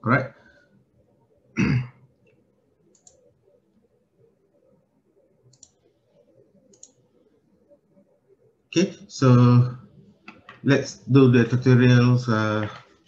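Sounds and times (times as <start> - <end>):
computer mouse clicks: 2.2 - 3.4, 5.4 - 7.1, 10.2 - 10.7.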